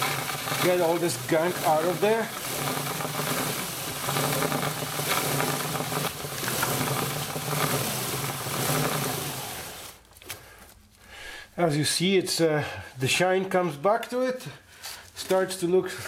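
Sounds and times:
hum of turning chain and wheel: 0.0 - 9.9
brush scrubbing a chain: 0.0 - 10.0.

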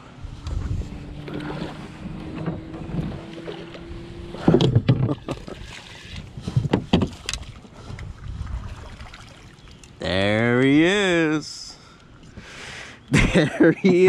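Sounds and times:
fish splashing in water: 8.6 - 9.9.

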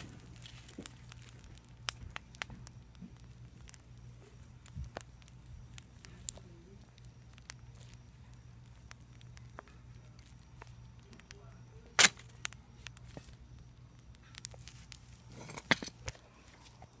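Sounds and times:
embers crackling and popping: 0.0 - 17.0
sharp loud ember pop: 12.0 - 12.2.

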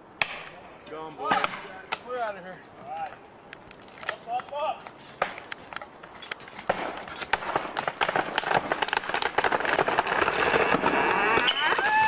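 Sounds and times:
wood cracking and branches snapping: 3.2 - 12.0.

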